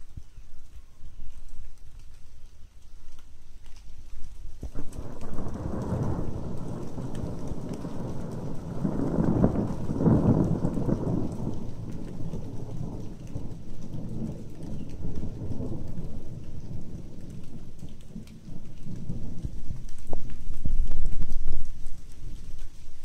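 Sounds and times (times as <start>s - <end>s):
rain falling: 0.0s - 23.0s
thunder rolling: 4.6s - 22.5s.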